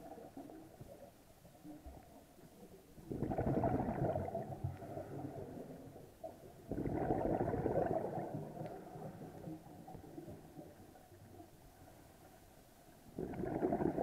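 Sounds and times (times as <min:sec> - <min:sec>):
diver exhaling bubbles underwater: 0:03.1 - 0:05.7, 0:06.7 - 0:09.1, 0:13.2 - 0:14.0.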